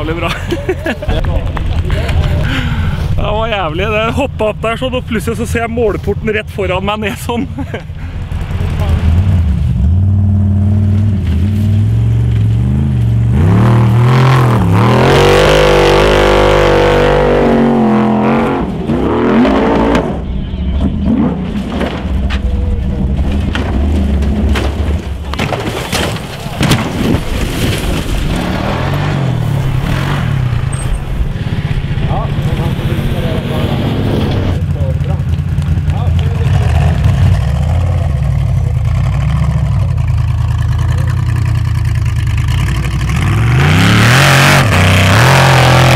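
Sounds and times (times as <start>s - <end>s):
engine throttle blips and cracks: 0.0s - 17.5s, 18.1s - 45.9s
race car engine revving: 8.2s - 25.1s, 28.1s - 45.9s.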